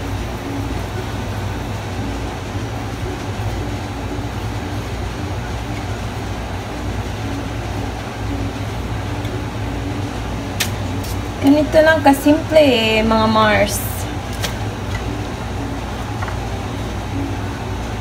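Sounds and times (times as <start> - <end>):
low mechanical hum and rumble: 0.0 - 18.0.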